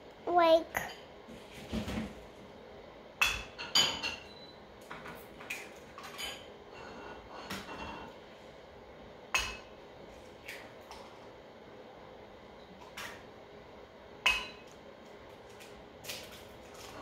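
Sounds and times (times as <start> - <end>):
cups and dishes clinking: 3.2 - 8.2, 9.4 - 9.7, 14.2 - 14.8.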